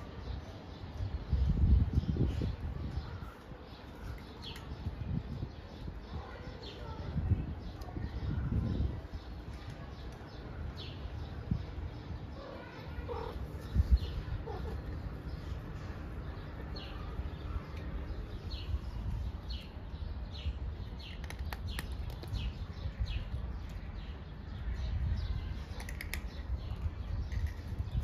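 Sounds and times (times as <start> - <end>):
small birds chirping: 0.0 - 28.0
cat crunching dry kibble: 25.5 - 28.0.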